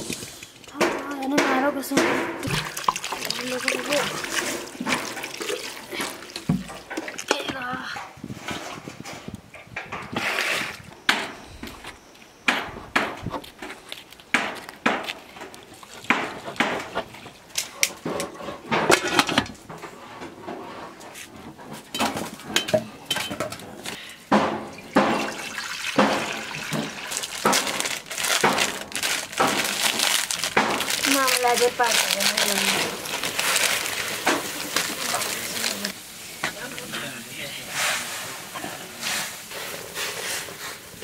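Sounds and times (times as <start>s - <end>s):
water splashing and pouring: 2.3s - 7.7s, 24.6s - 41.0s.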